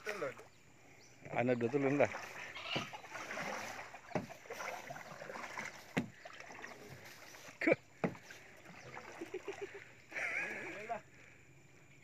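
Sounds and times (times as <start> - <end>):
paddle splashing through water: 1.4 - 11.0
sharp knocks on plastic boat: 4.1 - 4.4, 5.9 - 6.2, 8.0 - 8.3.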